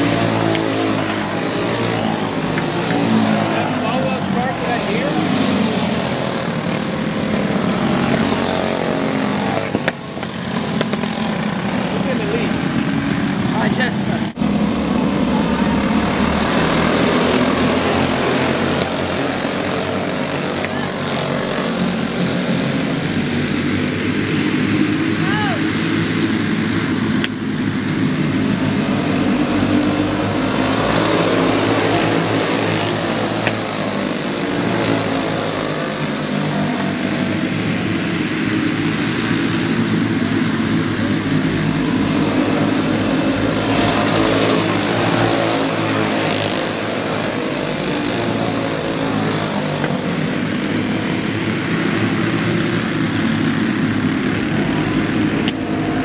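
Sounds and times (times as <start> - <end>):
go-kart engines buzzing: 0.0 - 56.0.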